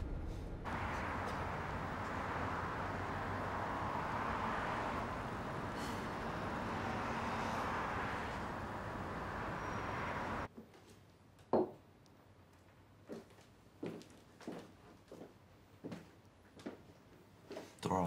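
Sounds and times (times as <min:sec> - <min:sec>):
road traffic: 0:00.0 - 0:10.5.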